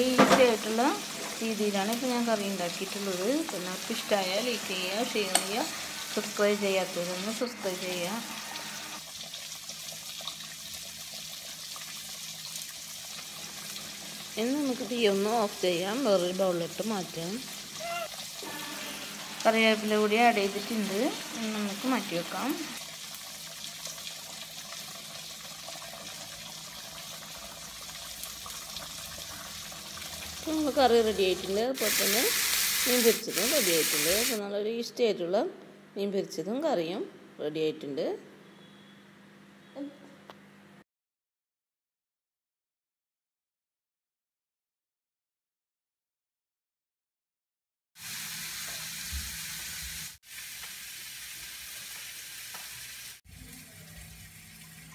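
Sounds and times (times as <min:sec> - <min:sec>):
food sizzling: 0:00.0 - 0:34.4, 0:48.0 - 0:54.9.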